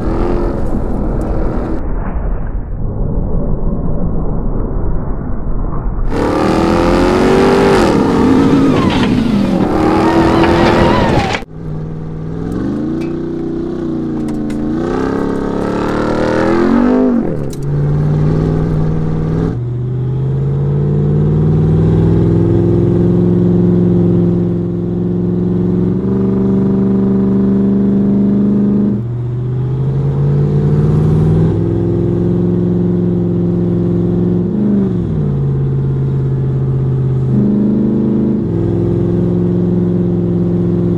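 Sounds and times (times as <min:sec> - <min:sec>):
engine revving hard: 0:06.1 - 0:11.5.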